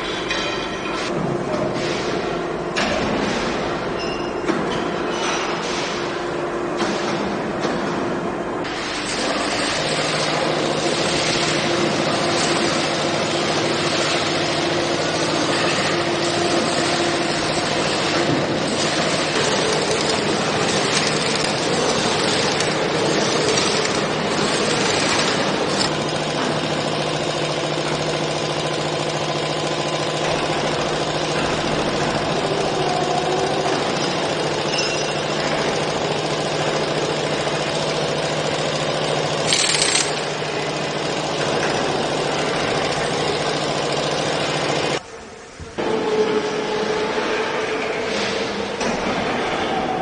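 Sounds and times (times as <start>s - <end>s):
heavy machinery din: 8.7s - 45.1s.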